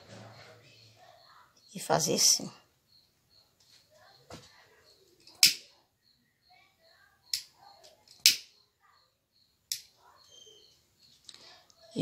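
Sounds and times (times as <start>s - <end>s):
lighter striking clicks: 5.4s - 5.6s.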